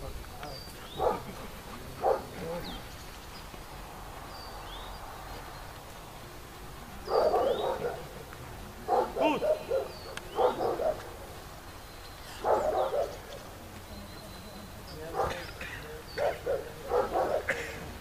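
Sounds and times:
dog barking: 0:01.0 - 0:01.4, 0:02.0 - 0:02.5, 0:07.0 - 0:08.2, 0:08.9 - 0:11.2, 0:12.4 - 0:13.4, 0:15.1 - 0:15.5, 0:16.2 - 0:17.7.

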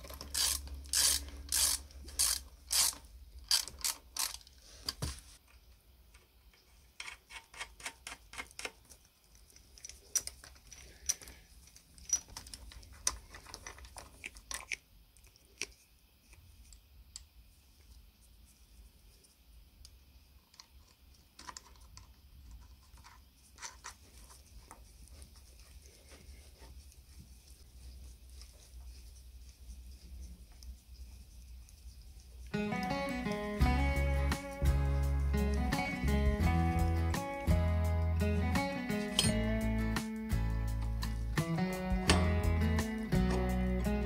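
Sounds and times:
metal parts clicking: 0:00.0 - 0:05.0.

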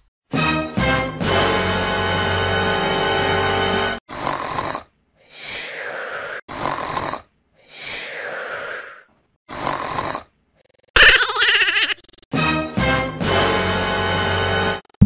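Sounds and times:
music: 0:00.3 - 0:04.0, 0:12.3 - 0:14.8
cartoon snoring: 0:04.1 - 0:10.9.

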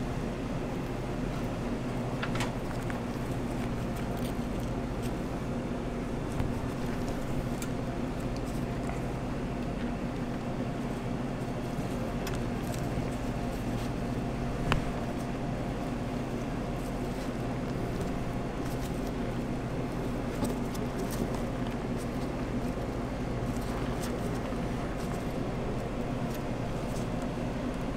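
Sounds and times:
low machine hum: 0:00.0 - 0:27.9.

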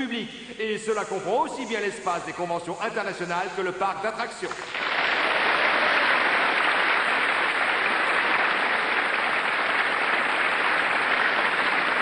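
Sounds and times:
crowd applauding: 0:04.5 - 0:12.0.

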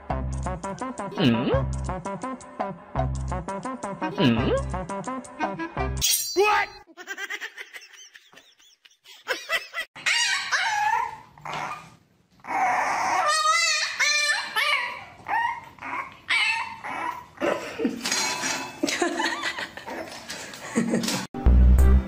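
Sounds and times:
puppy whining and yipping: 0:10.0 - 0:17.4.

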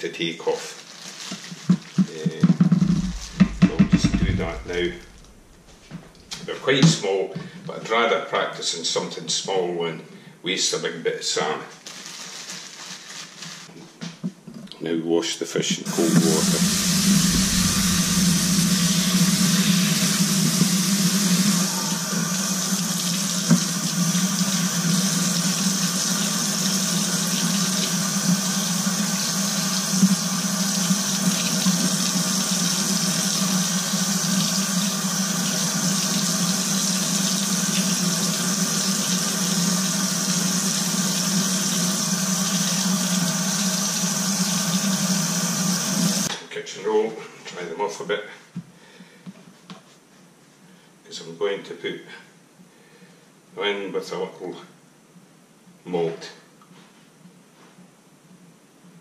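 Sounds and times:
tap running into sink: 0:02.4 - 0:05.5, 0:16.1 - 0:24.2.

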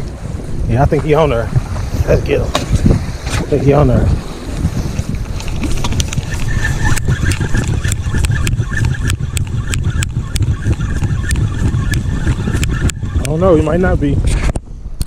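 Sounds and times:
wind on microphone: 0:00.0 - 0:15.0
fishing reel cranking clicks: 0:05.9 - 0:13.4.

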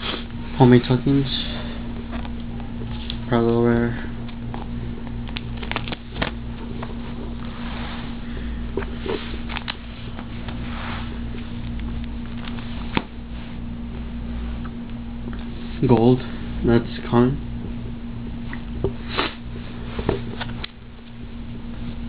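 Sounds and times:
steady low hum: 0:00.0 - 0:22.0
plastic pages rustling: 0:04.2 - 0:07.8.

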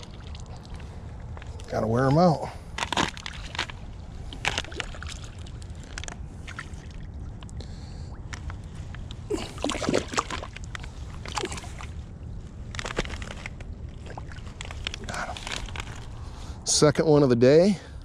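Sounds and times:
fish splashing at water surface: 0:00.0 - 0:01.4, 0:02.8 - 0:07.1, 0:09.3 - 0:12.0.

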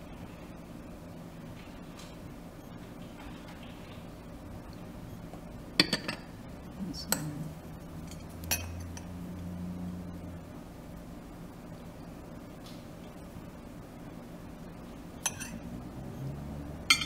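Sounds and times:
metal spoon clinking ceramic bowls: 0:08.0 - 0:09.1, 0:15.2 - 0:15.6.

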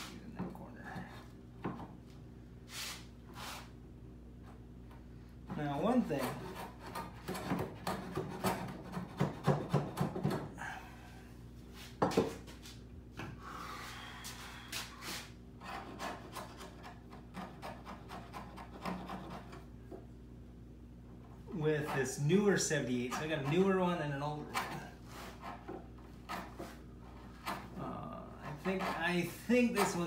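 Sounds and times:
rasp on wood: 0:05.9 - 0:10.1, 0:15.6 - 0:19.6, 0:23.1 - 0:30.0.

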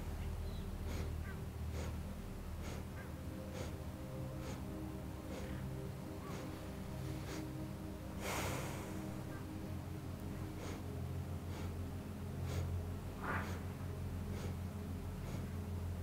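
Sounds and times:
low steady hum: 0:00.0 - 0:16.0
sniffs through the nose: 0:00.5 - 0:02.0, 0:02.6 - 0:07.6, 0:08.2 - 0:09.4, 0:10.5 - 0:11.8, 0:12.4 - 0:15.6
strong breath out through nose: 0:00.5 - 0:09.5, 0:10.4 - 0:15.7.

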